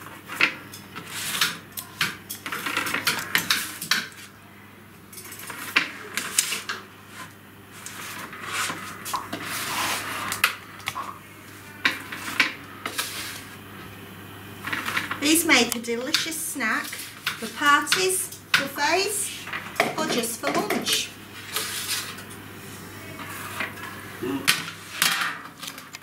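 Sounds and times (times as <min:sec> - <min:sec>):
spatula scraping metal trays: 0:05.2 - 0:10.5.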